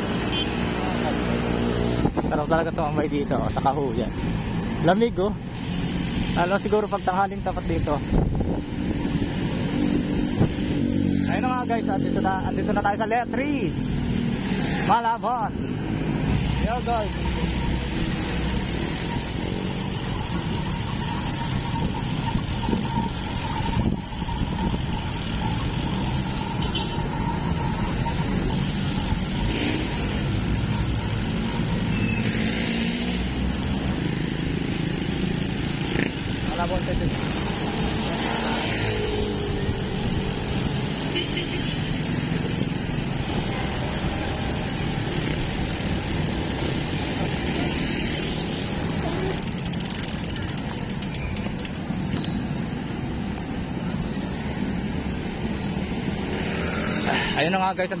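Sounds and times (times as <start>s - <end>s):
surrounding traffic: 0.0s - 58.0s
wind and road noise: 0.0s - 58.0s
wind on microphone: 8.0s - 10.9s, 21.6s - 25.2s
motorcycle engine: 13.8s - 51.8s.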